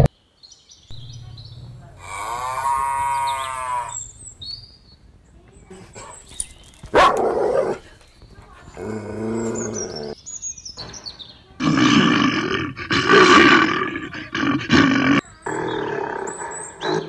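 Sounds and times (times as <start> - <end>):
whining animal call: 1.9 - 4.2, 8.7 - 10.2, 11.6 - 17.0
bear roaring and growling: 2.0 - 4.2, 8.7 - 10.2, 11.6 - 17.0
short loud animal call: 2.0 - 4.2.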